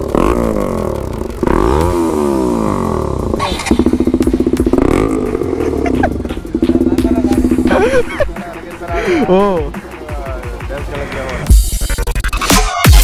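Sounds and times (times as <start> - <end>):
motorcycle engine revving: 0.0 - 9.7
exhaust cracks: 0.0 - 10.0.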